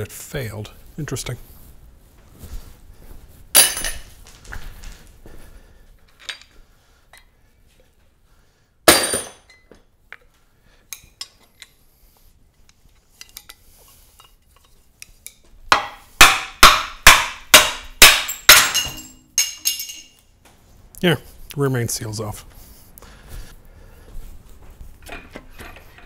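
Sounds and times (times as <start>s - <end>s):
hand tools striking metal: 15.7s - 20.2s.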